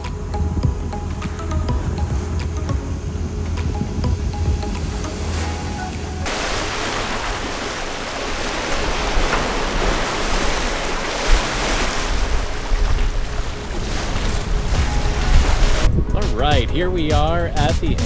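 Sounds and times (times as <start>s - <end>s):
background music: 0.0s - 6.3s, 14.4s - 18.0s
wind and waves rushing: 0.0s - 18.0s
wind buffeting microphone: 0.0s - 18.0s.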